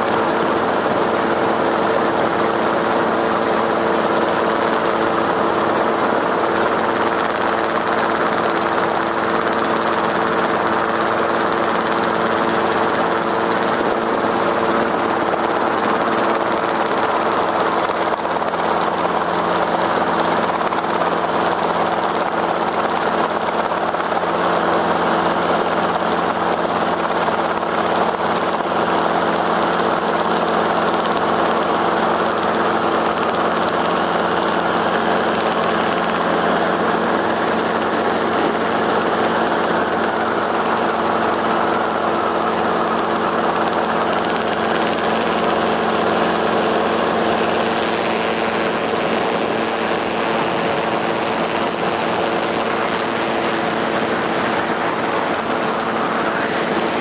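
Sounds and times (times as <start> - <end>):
engine droning: 27.2 - 57.0.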